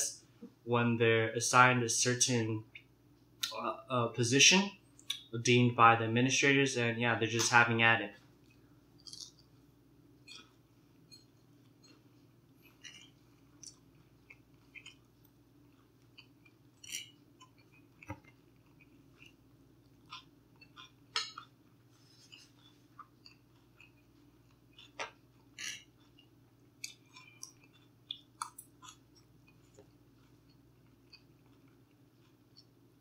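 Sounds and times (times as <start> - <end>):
chewing food: 8.4 - 9.5, 10.2 - 33.0.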